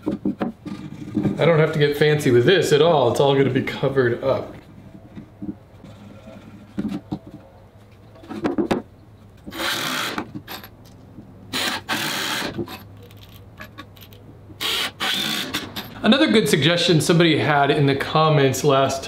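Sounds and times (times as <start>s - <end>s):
cordless drill driving screws: 9.5s - 10.3s, 11.5s - 12.6s, 14.6s - 15.8s.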